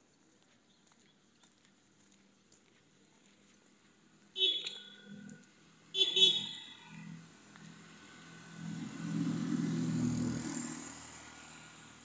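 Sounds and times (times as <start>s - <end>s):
vehicle engine passing by: 6.8s - 12.0s.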